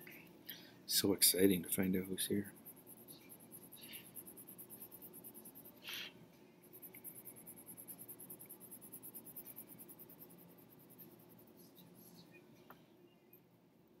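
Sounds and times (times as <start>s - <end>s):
pen scratching on paper: 2.5s - 5.8s, 6.7s - 11.8s
brief soft hiss: 5.8s - 6.2s.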